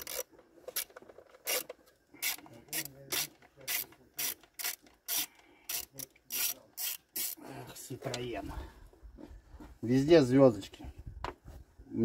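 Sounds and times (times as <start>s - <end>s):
hand ratchet clicking: 0.0s - 7.4s.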